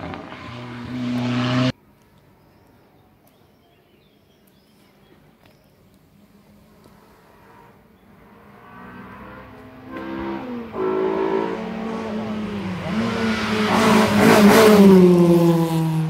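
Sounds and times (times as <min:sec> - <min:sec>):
race car engine accelerating: 0:00.0 - 0:01.7, 0:08.3 - 0:16.0.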